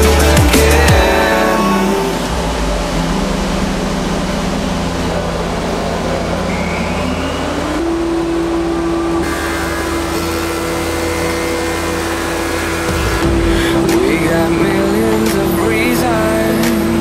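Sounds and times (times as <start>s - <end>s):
wood planing machine humming: 0.0s - 17.0s.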